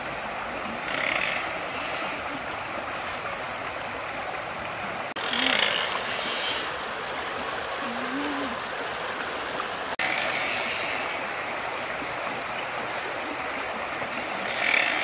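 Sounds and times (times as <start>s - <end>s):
stream flowing over stones: 0.0s - 15.0s.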